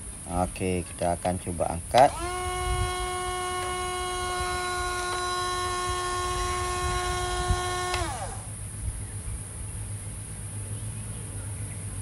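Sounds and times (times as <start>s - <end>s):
electric winch motor whining: 2.0s - 8.5s.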